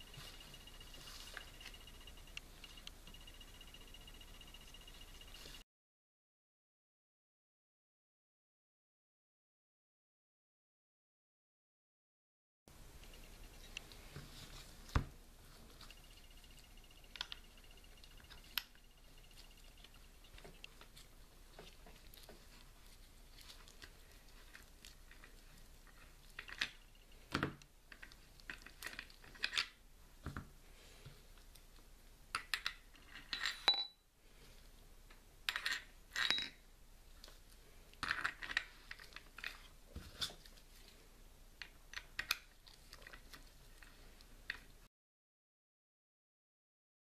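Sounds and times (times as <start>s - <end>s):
metal capsules clinking: 35.5s - 36.6s.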